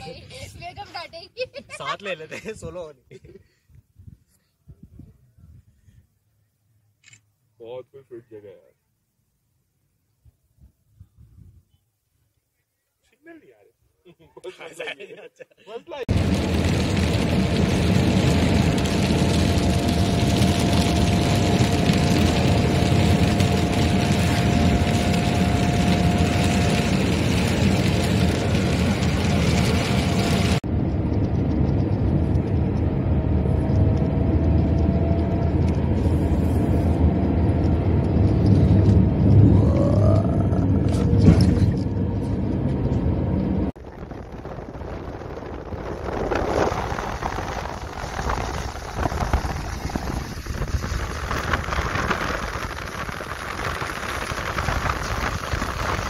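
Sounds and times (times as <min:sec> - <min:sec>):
vehicle engine and road noise: 0:16.1 - 0:56.0.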